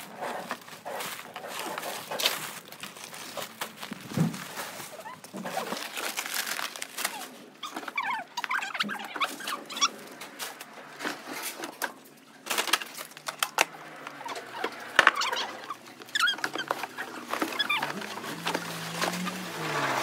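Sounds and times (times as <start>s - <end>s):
cardboard squeaking: 0.0s - 11.6s, 12.5s - 20.0s
cardboard boxes knocking and scraping: 3.5s - 4.8s.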